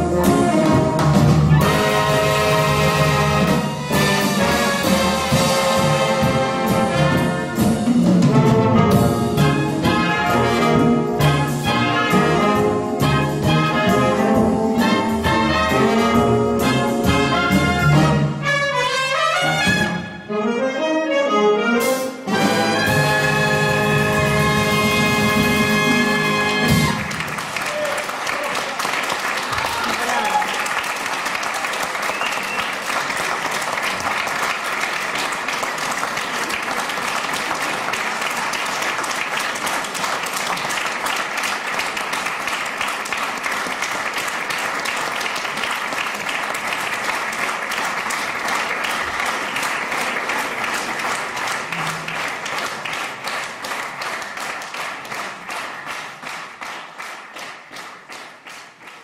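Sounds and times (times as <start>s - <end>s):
rhythmic clapping in unison: 22.9s - 59.0s
audience applauding: 23.0s - 59.0s.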